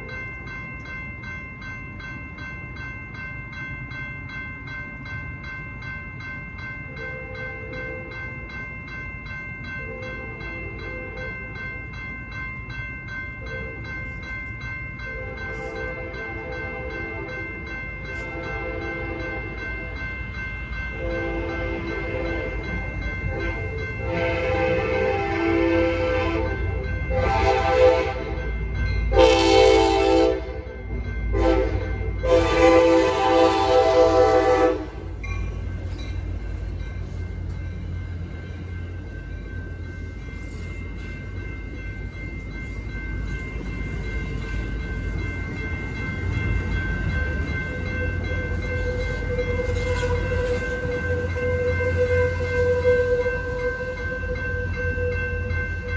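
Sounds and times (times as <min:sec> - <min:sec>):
railroad crossing bell ringing: 0:00.0 - 0:55.9
train rumble: 0:00.0 - 0:55.9
locomotive horn blasts: 0:18.2 - 0:19.5, 0:21.0 - 0:22.6, 0:23.3 - 0:28.4, 0:29.1 - 0:30.7, 0:31.3 - 0:35.1, 0:48.8 - 0:55.2.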